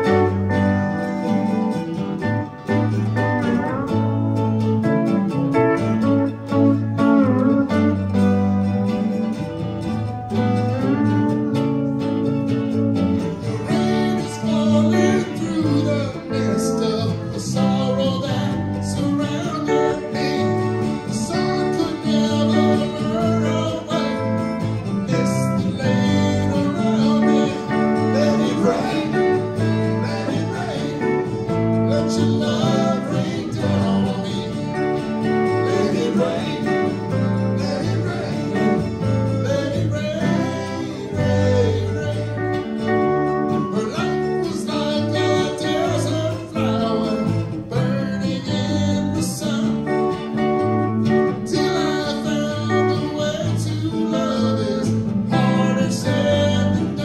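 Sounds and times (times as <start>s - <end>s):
string band playing country-rock: 0.0s - 57.0s
man singing: 13.4s - 57.0s.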